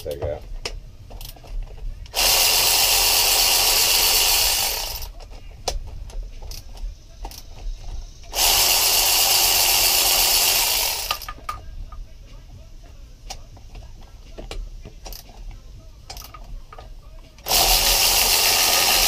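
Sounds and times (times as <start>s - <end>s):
electric ratchet running: 2.1s - 5.2s, 6.0s - 11.6s, 14.4s - 15.5s, 17.4s - 19.0s.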